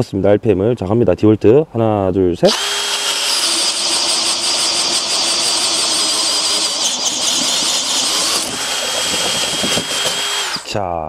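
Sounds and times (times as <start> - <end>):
drill motor whine: 2.5 - 10.7
drill bit chewing through wood: 2.5 - 10.8.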